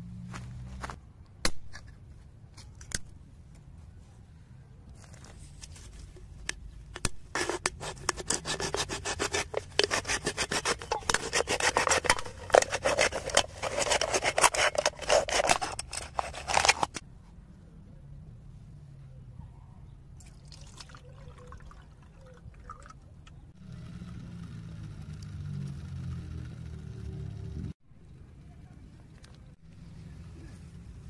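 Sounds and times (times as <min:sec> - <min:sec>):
knife scraping metal can: 0:07.3 - 0:17.0.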